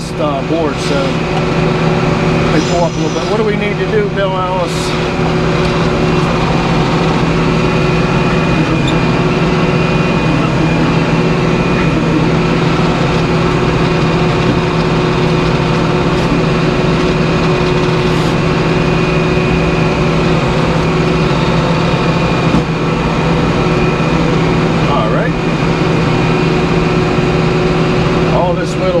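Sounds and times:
mill engine drone: 0.0s - 29.0s
band saw cutting log: 0.7s - 18.8s.

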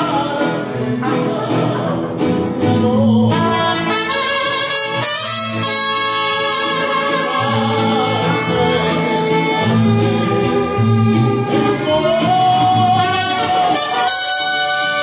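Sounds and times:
mariachi band playing: 0.0s - 15.0s
violins: 6.0s - 12.8s.

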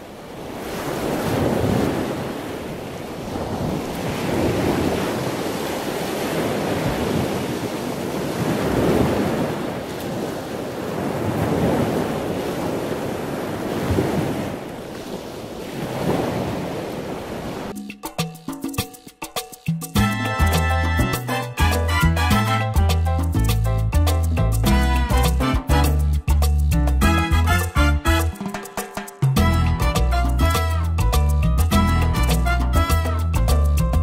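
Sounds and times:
ocean waves washing: 0.0s - 17.8s.

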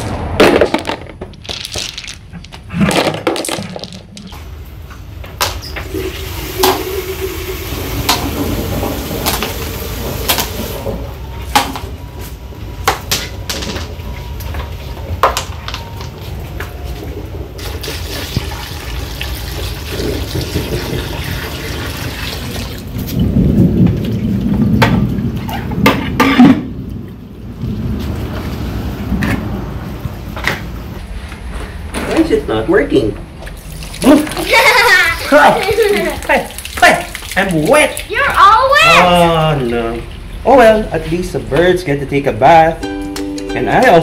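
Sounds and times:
pebbles clicking: 0.7s - 4.4s
water pouring into basin: 5.9s - 10.8s, 17.6s - 23.0s, 33.6s - 38.1s.

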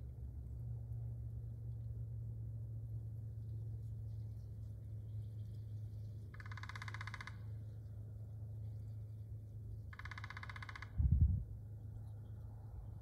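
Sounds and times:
woodpecker drumming: 5.2s - 7.8s, 9.8s - 11.0s.

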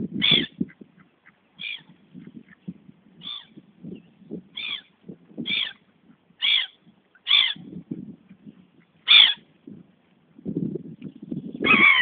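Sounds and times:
waterbirds calling: 0.2s - 7.8s, 8.4s - 9.5s.

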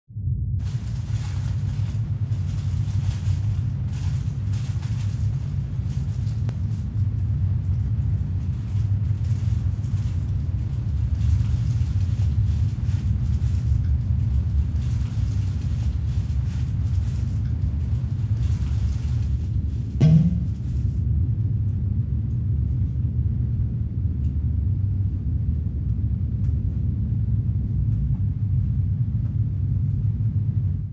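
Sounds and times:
low rumbling drone: 0.1s - 30.9s
paper wrapper rustling: 0.6s - 21.0s.

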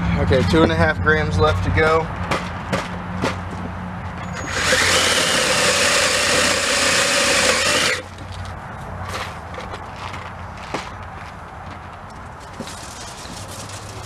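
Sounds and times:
drill boring into metal: 4.4s - 8.1s
drill clicks: 4.4s - 8.1s.

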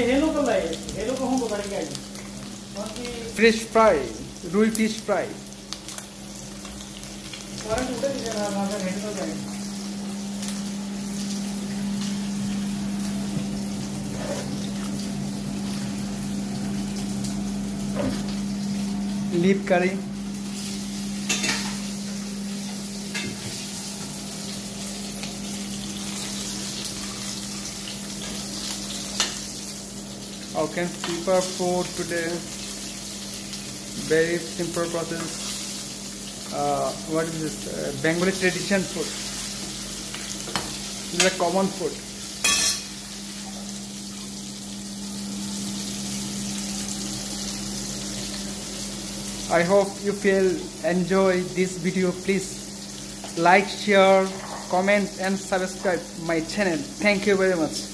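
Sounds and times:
fish sizzling in oil: 0.0s - 57.9s
metal spoon clinking on pan: 42.4s - 42.9s.

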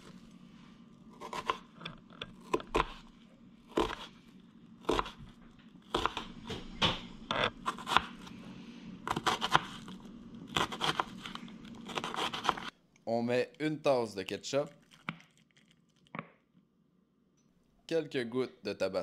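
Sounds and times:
knife cutting onion on plastic board: 1.1s - 3.1s, 3.7s - 4.2s, 4.8s - 6.6s, 7.2s - 8.4s, 9.1s - 9.9s, 10.5s - 12.7s.

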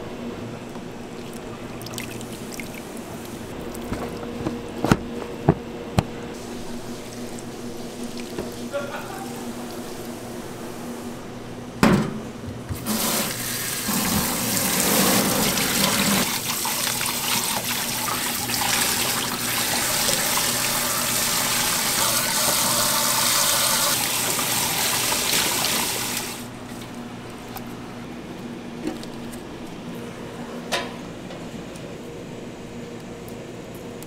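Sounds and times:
tap water running into sink: 12.8s - 26.4s.

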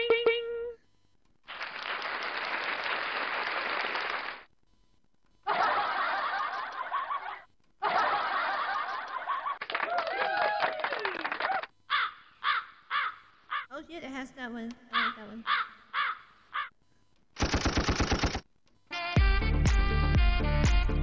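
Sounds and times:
canned laughter: 5.4s - 10.3s.

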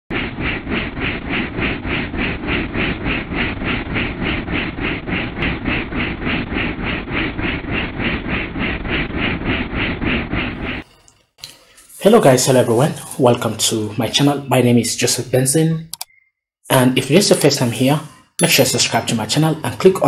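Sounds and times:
helicopter engine rumble: 0.1s - 10.8s
helicopter rotor blades beating: 0.1s - 10.9s.

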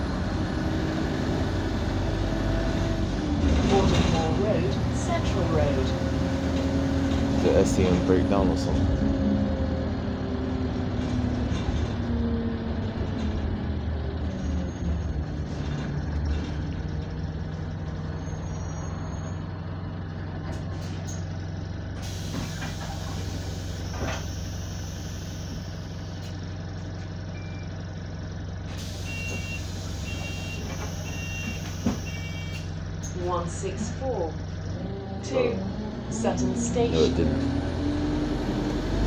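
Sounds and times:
diesel bus engine idling: 0.0s - 39.0s
air brakes hissing: 22.0s - 26.3s, 28.7s - 32.7s.

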